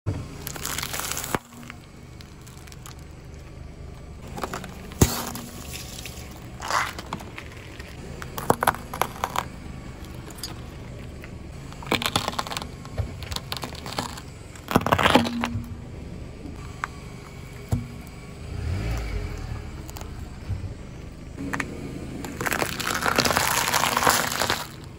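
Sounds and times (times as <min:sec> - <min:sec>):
low rumble: 0:00.1 - 0:24.9
tyre crushing brittle objects: 0:00.4 - 0:03.6, 0:04.2 - 0:15.8, 0:21.4 - 0:24.9.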